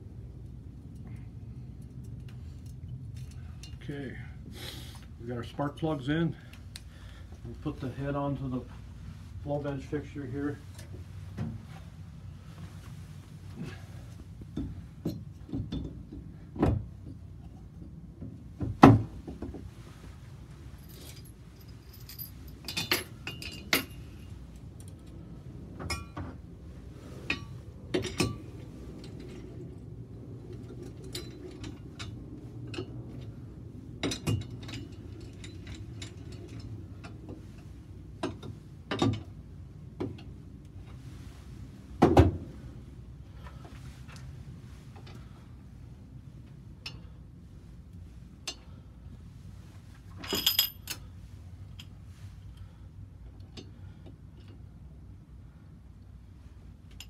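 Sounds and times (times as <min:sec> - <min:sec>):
steady low hum: 0:00.0 - 0:57.0
metal knocks and clinks: 0:20.8 - 0:24.3, 0:50.2 - 0:51.0.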